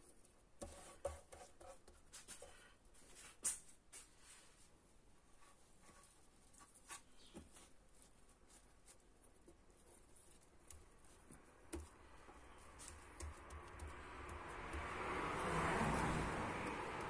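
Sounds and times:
hands patting and rubbing cloth: 0:05.4 - 0:17.0.

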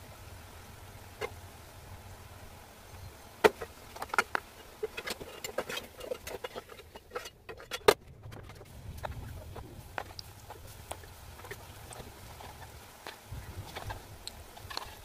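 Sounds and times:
fritters frying in hot oil: 0:08.7 - 0:15.0.

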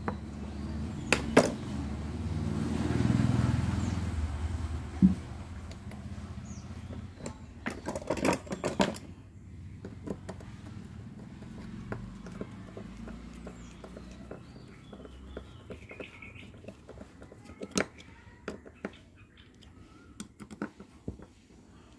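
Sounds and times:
metallic knocks and rattles: 0:06.8 - 0:09.1.

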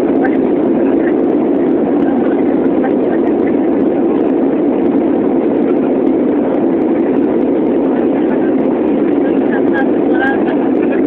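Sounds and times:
airliner engines roaring: 0:00.0 - 0:11.0
rushing air: 0:00.0 - 0:11.0.

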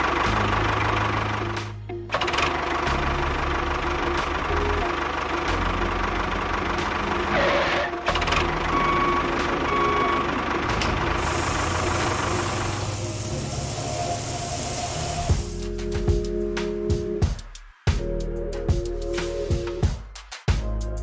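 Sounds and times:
steady hiss: 0:11.2 - 0:15.6.

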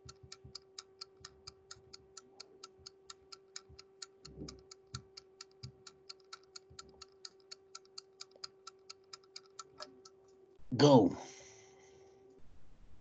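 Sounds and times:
fast timer ticking: 0:00.0 - 0:10.2
steady low hum: 0:00.0 - 0:13.0.

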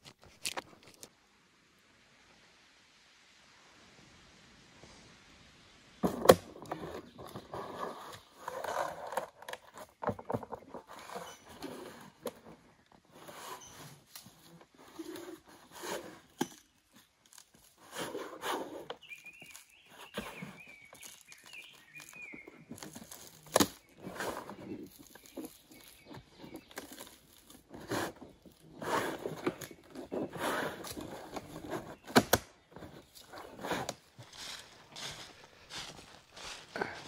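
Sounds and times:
bark cracking and peeling: 0:18.8 - 0:32.5.

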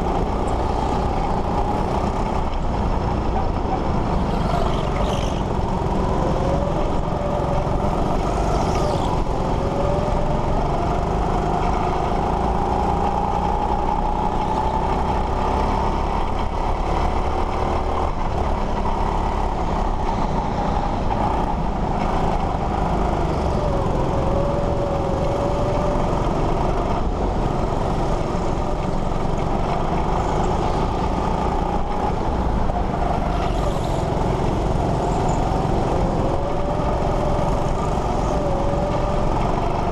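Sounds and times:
go-kart engine rumble and whine: 0:00.0 - 0:39.9.

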